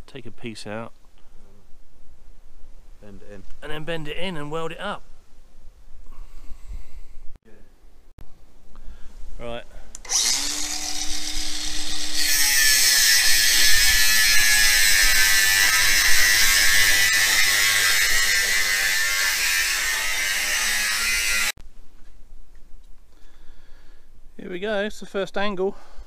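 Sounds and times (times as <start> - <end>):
angle grinder cutting steel: 10.0 - 21.6.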